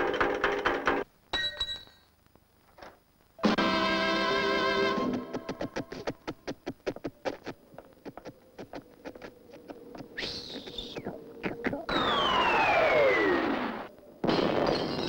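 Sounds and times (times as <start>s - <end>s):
whistle sliding down in pitch: 11.9s - 13.7s.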